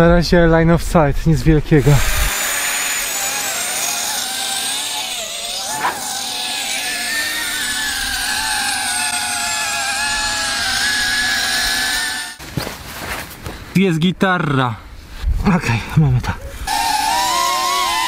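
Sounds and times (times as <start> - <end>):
drone motors whining: 1.8 - 12.4, 16.7 - 18.0.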